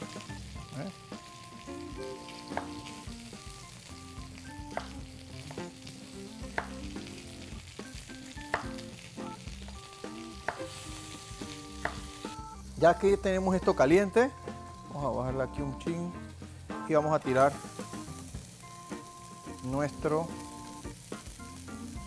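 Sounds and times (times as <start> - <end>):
food sizzling in a pan: 0.0 - 22.0
knife chopping on wooden board: 4.7 - 5.6, 6.5 - 6.8, 8.5 - 8.9, 10.4 - 10.8, 11.8 - 12.1.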